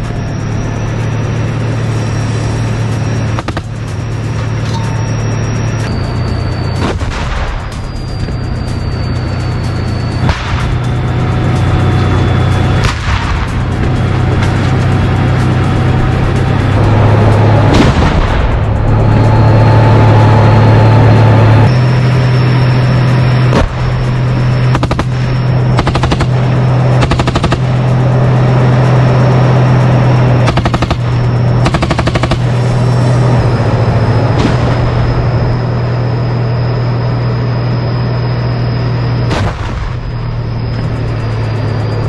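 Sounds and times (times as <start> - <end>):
tank engine droning: 0.0 - 42.0
rapid gunfire bursts: 25.8 - 26.4, 27.0 - 27.7, 31.6 - 32.5.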